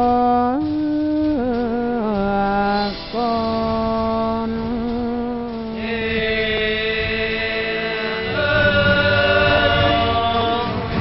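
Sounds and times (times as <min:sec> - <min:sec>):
voices chanting long notes: 0:05.8 - 0:11.0.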